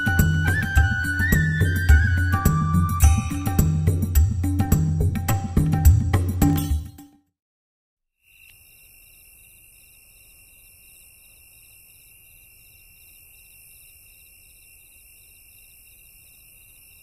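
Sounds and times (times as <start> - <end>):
crickets trilling: 8.2 - 17.0.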